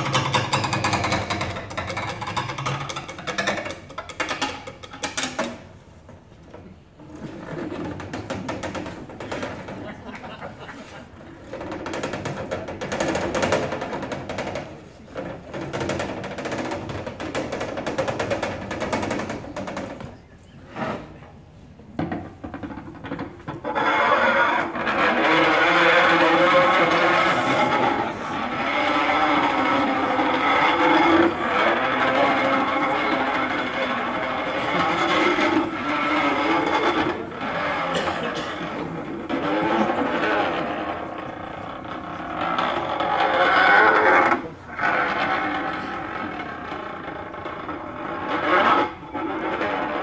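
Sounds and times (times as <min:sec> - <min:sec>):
rough scraping on cello: 0:20.6 - 0:21.4, 0:23.0 - 0:50.0.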